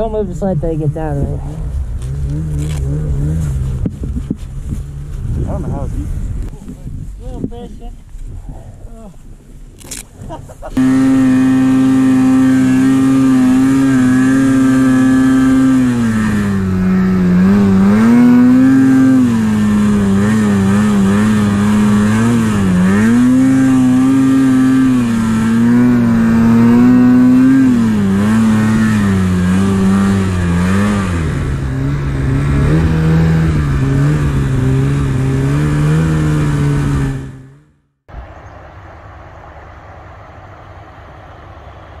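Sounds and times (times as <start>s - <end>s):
snowmobile engine revving: 0.0s - 6.6s, 9.9s - 37.7s
quiet steady rushing noise: 38.1s - 42.0s.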